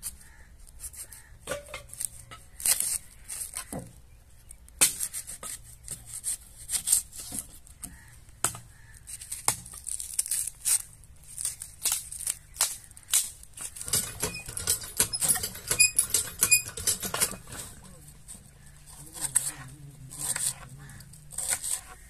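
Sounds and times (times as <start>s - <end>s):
onion skin tearing: 1.9s - 3.7s, 6.0s - 7.2s, 8.7s - 13.8s.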